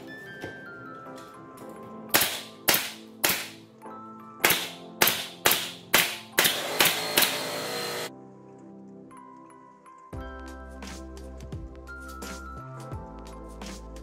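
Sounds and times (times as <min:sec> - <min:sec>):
nail gun shots: 0:02.1 - 0:03.6, 0:04.4 - 0:08.1.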